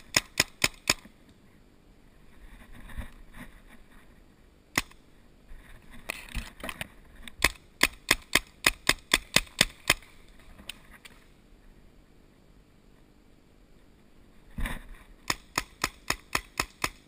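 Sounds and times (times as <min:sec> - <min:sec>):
paintball marker firing: 0:00.0 - 0:01.1, 0:04.8 - 0:05.0, 0:07.4 - 0:10.1, 0:15.3 - 0:17.0.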